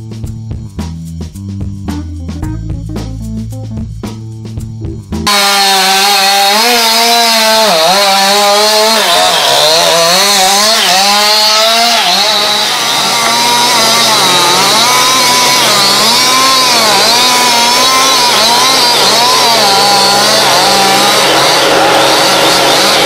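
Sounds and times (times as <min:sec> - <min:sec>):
chainsaw cutting tree trunk: 0:05.2 - 0:23.0.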